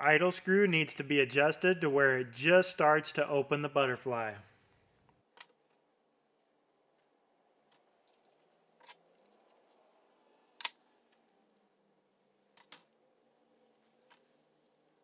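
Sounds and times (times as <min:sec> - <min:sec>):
small parts clicking and tapping: 0:04.7 - 0:09.8, 0:10.6 - 0:15.0.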